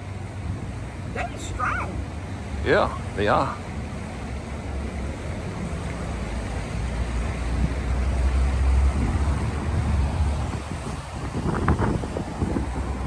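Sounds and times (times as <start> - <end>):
wind rumbling on microphone: 7.0 - 13.0.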